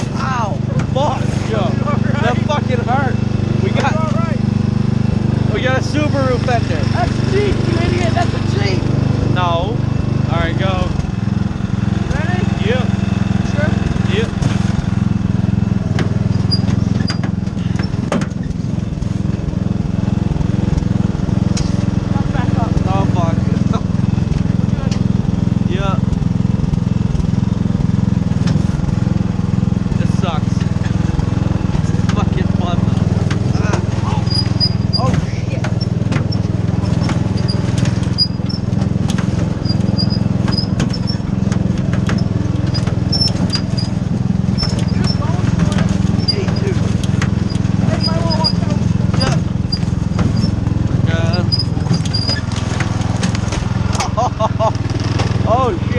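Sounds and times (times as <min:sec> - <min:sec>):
riding lawn mower engine running: 0:00.0 - 0:55.9
cart jolting knocks: 0:14.2 - 0:19.7, 0:30.5 - 0:55.7
high squeaks: 0:16.2 - 0:18.6, 0:33.4 - 0:53.5.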